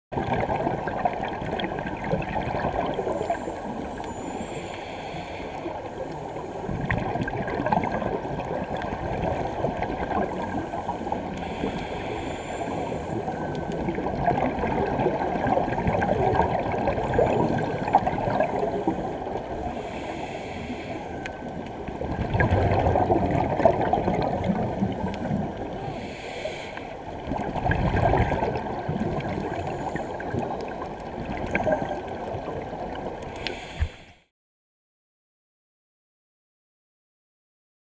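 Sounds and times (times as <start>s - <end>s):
underwater bubbles gurgling: 0.1s - 34.1s
regulator hiss: 10.8s - 13.2s, 25.9s - 27.0s
loud bubbling rumbles: 22.2s - 24.7s.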